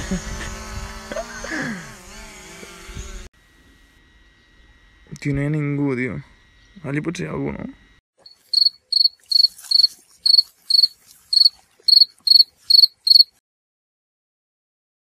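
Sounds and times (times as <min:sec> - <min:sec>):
cricket chirping: 0:08.2 - 0:13.4.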